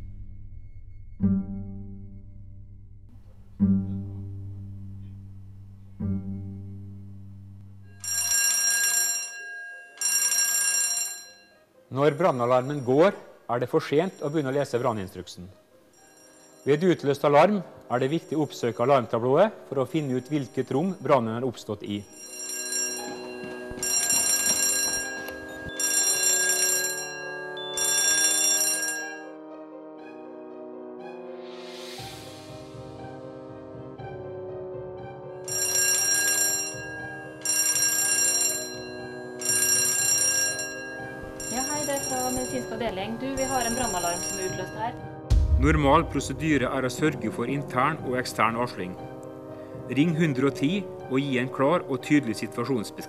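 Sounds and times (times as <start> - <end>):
background music: 0.0 - 53.0
plucked double bass notes: 1.2 - 7.9, 45.3 - 46.9
electric alarm bell ringing: 7.8 - 11.7, 16.0 - 16.8, 22.0 - 29.4, 35.4 - 45.0.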